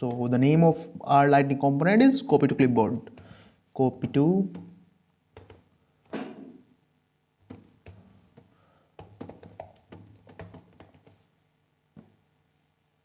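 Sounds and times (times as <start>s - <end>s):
keyboard typing: 5.4s - 5.7s, 7.4s - 11.2s.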